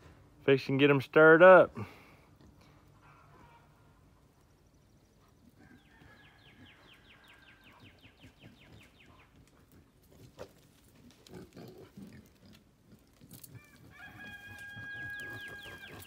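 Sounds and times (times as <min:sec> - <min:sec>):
pigs grunting: 0:09.6 - 0:13.9.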